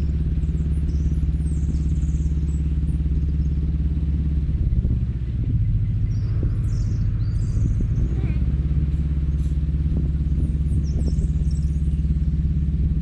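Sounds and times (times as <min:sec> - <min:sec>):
boat diesel engine running: 0:00.0 - 0:13.0.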